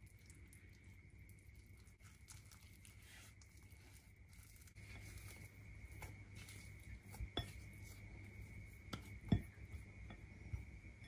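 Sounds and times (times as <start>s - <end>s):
faint steady hum: 0.0s - 11.0s
spatula scraping dough in bowl: 2.0s - 10.7s.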